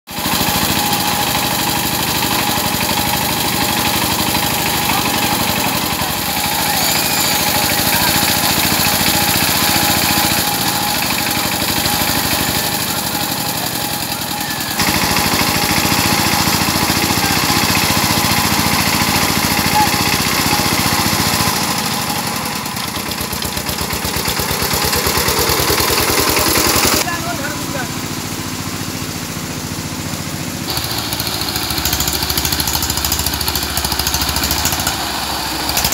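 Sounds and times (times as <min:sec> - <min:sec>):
diesel engine running under load: 0:00.1 - 0:35.9.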